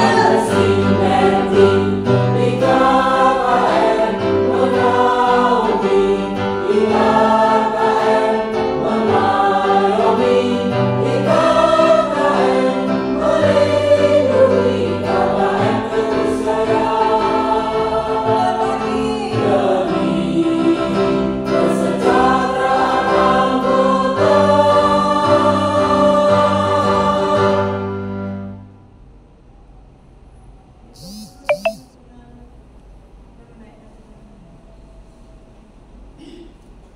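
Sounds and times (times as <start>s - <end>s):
women's choir singing: 0.0s - 28.2s.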